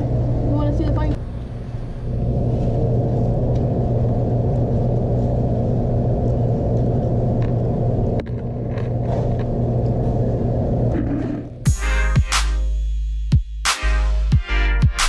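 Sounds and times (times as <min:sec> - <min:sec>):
low rumble: 0:00.0 - 0:11.8
low hum: 0:00.0 - 0:12.2.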